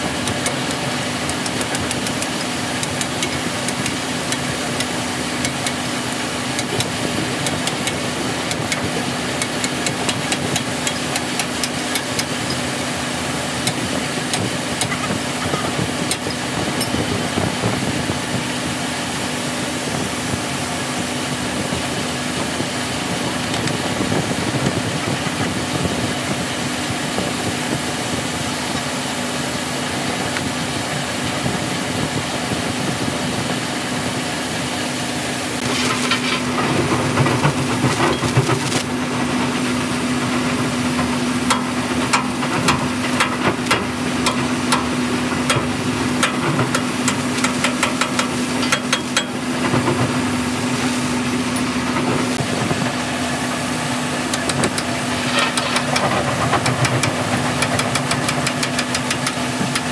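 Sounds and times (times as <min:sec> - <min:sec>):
steady mechanical hum: 0:00.0 - 0:59.9
steel tools clicking and tapping: 0:00.2 - 0:05.8, 0:06.6 - 0:12.6, 0:13.6 - 0:17.0, 0:46.2 - 0:49.4, 0:54.3 - 0:59.9.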